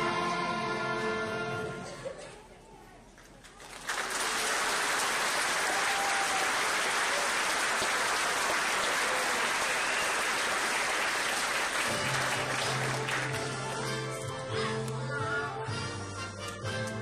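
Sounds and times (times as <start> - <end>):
audience applause: 3.4 - 13.8.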